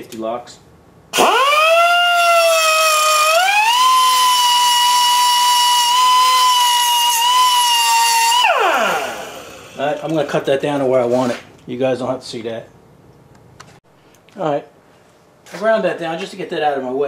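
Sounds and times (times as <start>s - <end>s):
cutoff tool motor whine: 1.2s - 9.8s.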